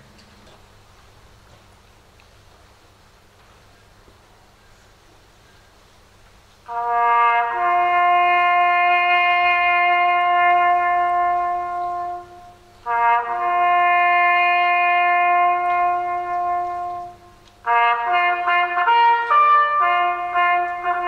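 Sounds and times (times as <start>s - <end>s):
bugle call on brass instrument: 6.7s - 21.0s.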